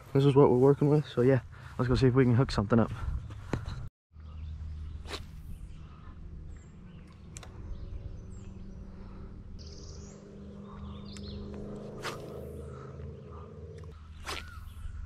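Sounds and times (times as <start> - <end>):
steady low hum: 4.2 - 15.0
high bird chirps: 9.6 - 15.0.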